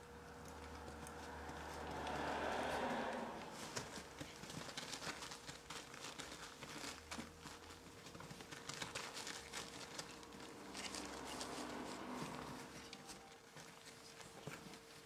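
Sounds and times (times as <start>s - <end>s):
puppy paws scratching on bedding: 0.0s - 15.0s.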